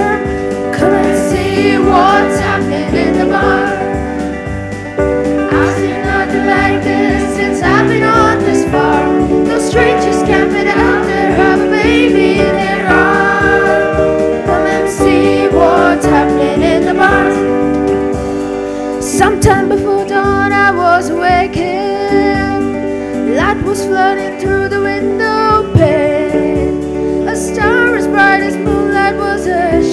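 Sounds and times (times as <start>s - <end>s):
boy soloist singing: 0.0s - 4.2s, 5.4s - 17.7s
acoustic guitar: 0.0s - 29.9s
keyboard: 0.0s - 29.9s
boys' choir singing: 0.7s - 4.4s, 5.3s - 17.8s.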